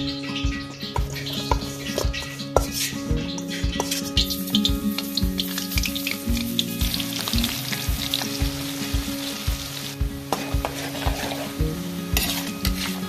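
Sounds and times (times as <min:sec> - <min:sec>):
music with steady beat: 0:00.0 - 0:13.0
onions sizzling in hot oil: 0:03.8 - 0:13.0.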